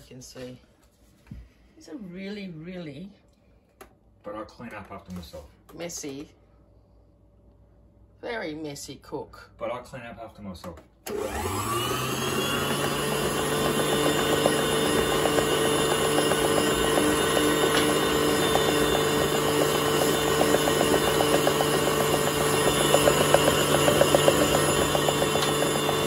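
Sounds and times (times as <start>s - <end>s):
stand mixer motor hum: 11.1s - 26.0s.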